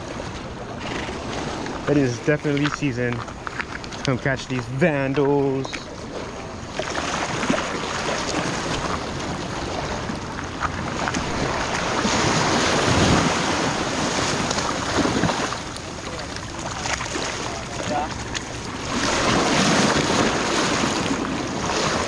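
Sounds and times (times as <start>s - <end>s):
waves surging against rocks: 0.0s - 22.0s
wind buffeting microphone: 6.0s - 22.0s.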